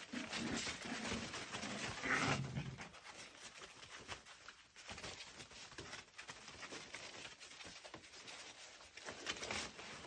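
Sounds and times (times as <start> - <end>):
paws scrabbling on plastic tarp: 0.0 - 10.0.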